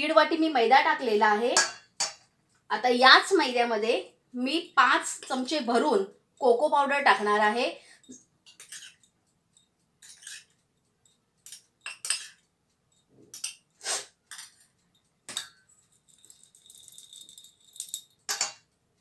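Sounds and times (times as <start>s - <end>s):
metal spoon clinking on metal: 1.5s - 2.3s, 8.0s - 13.7s, 14.3s - 18.8s.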